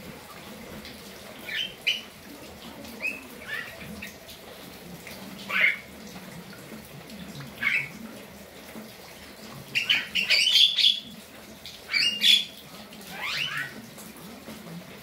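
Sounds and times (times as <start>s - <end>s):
mynas calling and chattering: 5.4s - 6.0s, 11.8s - 13.9s.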